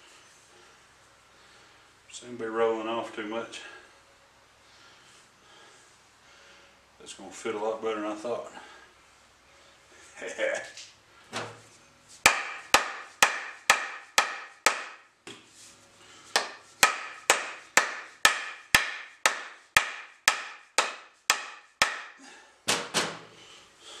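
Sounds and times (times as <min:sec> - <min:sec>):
hammer blows on wooden handle: 0:16.4 - 0:22.2.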